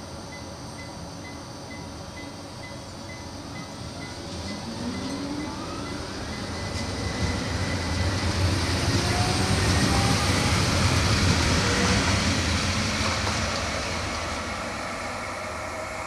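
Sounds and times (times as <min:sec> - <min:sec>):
tram wheels rumbling on rails: 0:03.4 - 0:16.0.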